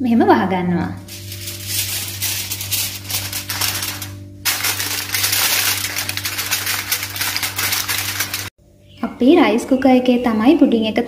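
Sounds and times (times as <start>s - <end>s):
aluminium foil crinkling: 1.1s - 8.5s.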